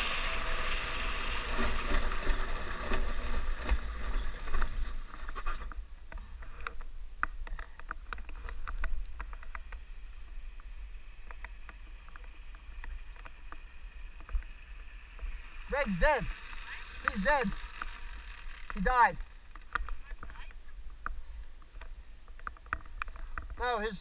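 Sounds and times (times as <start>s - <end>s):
light clicks and ticks: 10.5s - 14.6s.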